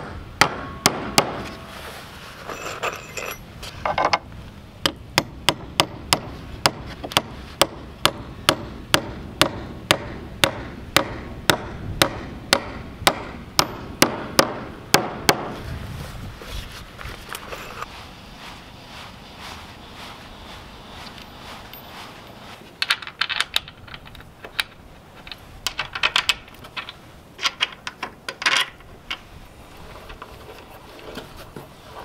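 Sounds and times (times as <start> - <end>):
hammer striking metal bolt: 0.4 - 1.7
light metal clinking: 2.5 - 3.5, 21.1 - 24.3.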